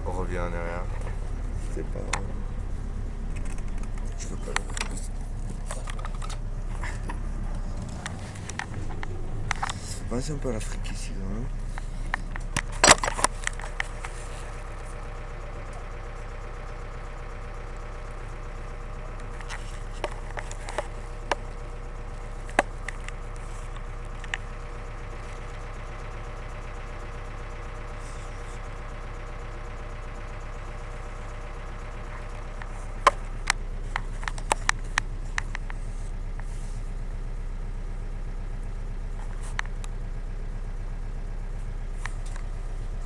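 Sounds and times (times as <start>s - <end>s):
bus engine running: 0.0s - 43.0s.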